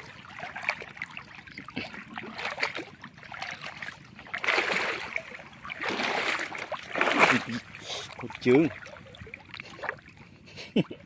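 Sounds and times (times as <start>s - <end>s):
people wading through water: 0.0s - 11.0s.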